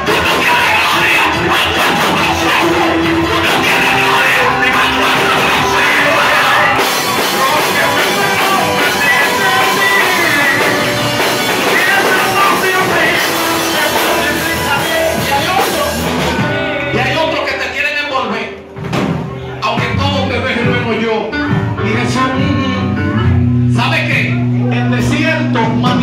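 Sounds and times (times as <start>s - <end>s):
voices singing: 0.0s - 17.4s
worship band with drums: 0.0s - 26.0s.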